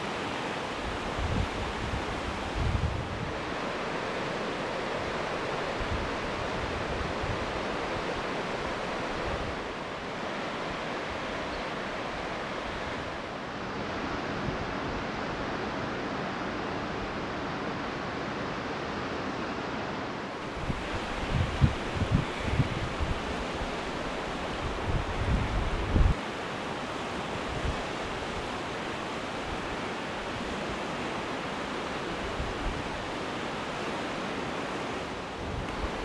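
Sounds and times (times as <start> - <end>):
river running over rapids: 0.0 - 36.0
wind buffeting microphone: 0.8 - 3.6, 20.4 - 26.2.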